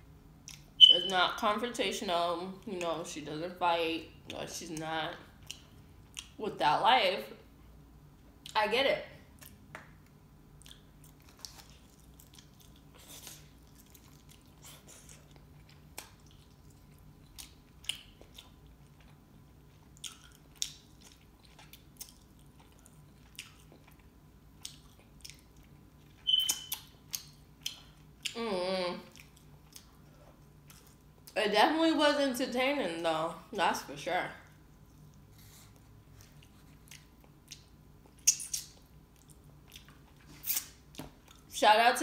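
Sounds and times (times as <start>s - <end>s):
person chewing: 5.3s - 6.4s, 9.4s - 28.4s, 29.0s - 31.4s, 34.5s - 41.5s
short squeak: 26.2s - 26.8s.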